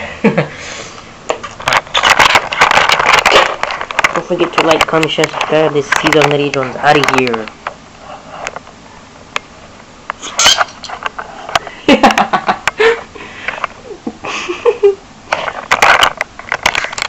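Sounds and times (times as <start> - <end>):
handling rustling and clicks: 1.4 - 7.8, 15.3 - 17.0.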